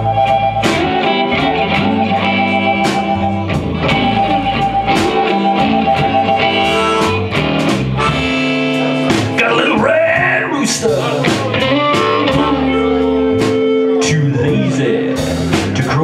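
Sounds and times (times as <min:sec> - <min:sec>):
amplified harmonica: 0:00.0 - 0:09.3, 0:11.6 - 0:14.2
bass guitar: 0:00.0 - 0:16.0
drums with cymbal hits: 0:00.0 - 0:16.0
electric guitar: 0:00.0 - 0:16.0.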